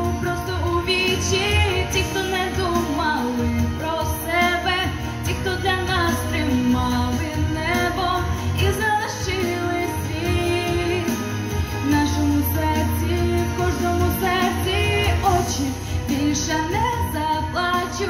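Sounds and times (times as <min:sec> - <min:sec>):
backing track with bass line: 0:00.0 - 0:18.0
woman singing a pop ballad: 0:00.0 - 0:18.0.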